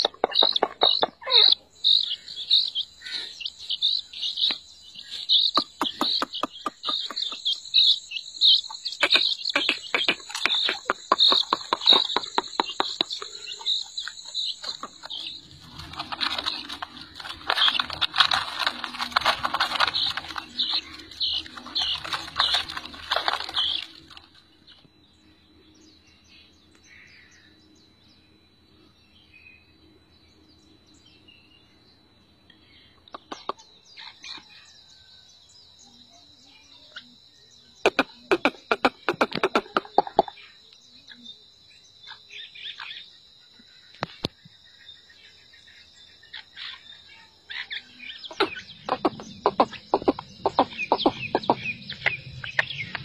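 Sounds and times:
chicks peeping: 0.0s - 24.8s, 48.2s - 53.0s.

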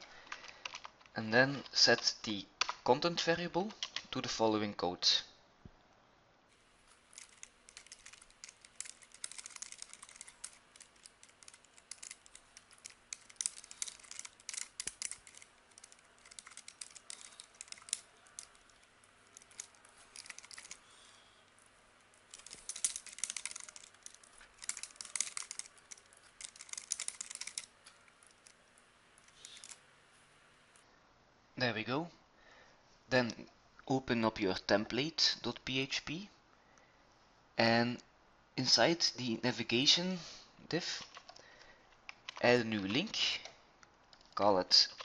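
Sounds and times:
typing on computer keyboard: 6.9s - 28.6s.

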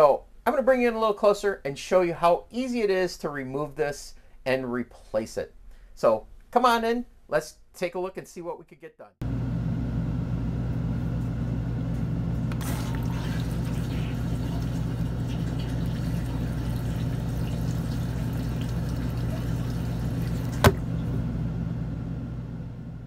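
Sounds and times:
low hum with hiss: 9.2s - 23.0s.

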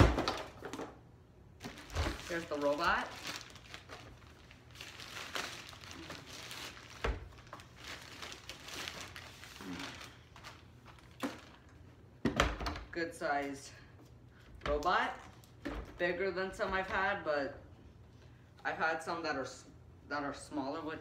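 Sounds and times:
plastic bag crinkling: 1.6s - 11.8s.

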